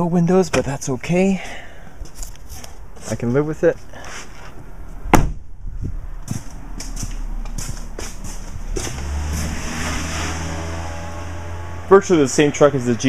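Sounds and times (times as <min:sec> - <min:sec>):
truck door slamming: 0:05.1 - 0:05.5
scuffs and taps: 0:06.2 - 0:09.1.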